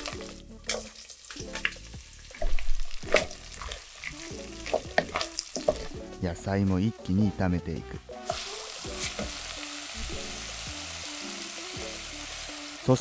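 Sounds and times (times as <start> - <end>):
frying sizzle: 0.0 - 6.2, 8.2 - 13.0
spatula scraping and tapping pot: 2.4 - 6.0.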